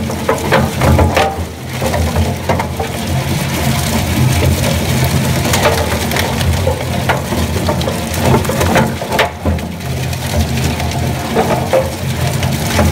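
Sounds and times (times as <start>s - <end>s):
shredder crunching rubber: 0.0s - 12.9s.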